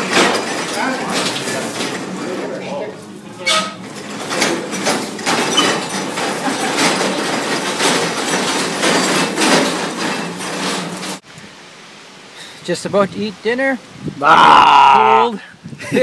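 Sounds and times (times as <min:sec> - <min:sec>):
metal scaffold rattling and clanking: 0:00.0 - 0:11.2.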